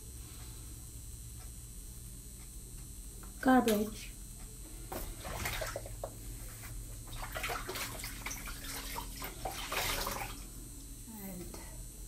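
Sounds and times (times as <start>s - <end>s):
tap water splashing in sink: 4.9s - 6.2s, 7.1s - 10.4s.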